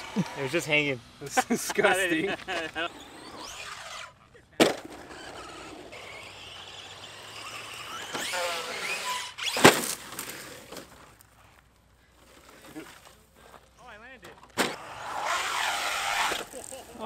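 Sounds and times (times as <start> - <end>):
electric motors whining: 0.0 - 11.3, 14.4 - 17.0
toy truck crashing into brush: 2.4 - 11.2, 14.5 - 16.8
toy truck landing impact: 4.6 - 11.0, 14.5 - 16.6.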